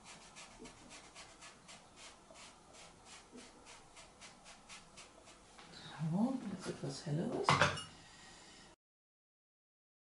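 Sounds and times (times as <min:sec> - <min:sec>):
sponge rubbing on paper: 0:00.0 - 0:05.5.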